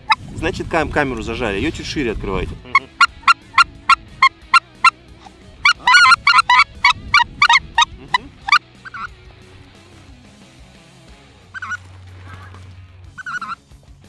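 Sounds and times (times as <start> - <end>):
goose call honks: 2.6 - 9.1, 11.6 - 12.6, 13.2 - 13.6.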